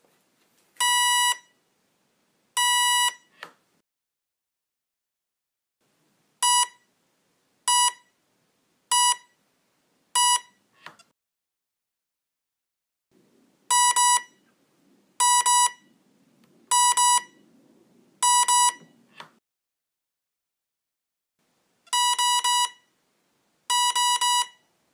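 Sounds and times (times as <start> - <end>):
electronic programming beeps: 18.2 - 18.9.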